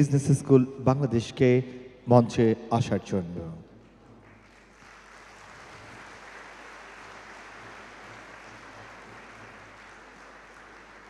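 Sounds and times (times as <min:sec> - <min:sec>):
faint audience applause: 0:03.8 - 0:11.0.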